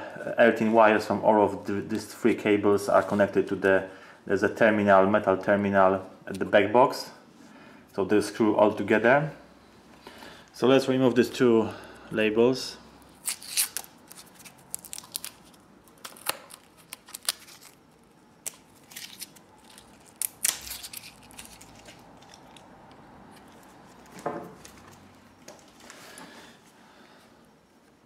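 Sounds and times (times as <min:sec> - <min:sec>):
tape peeling off cables: 0:13.0 - 0:26.0.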